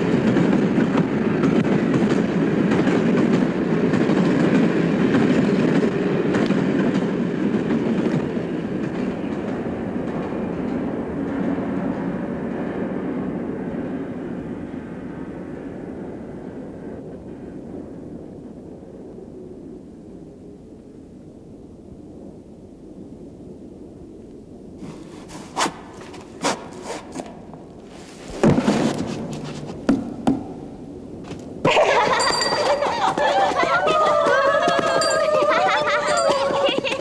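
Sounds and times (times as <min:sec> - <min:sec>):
sharp knocks and thuds: 0:28.3 - 0:30.6.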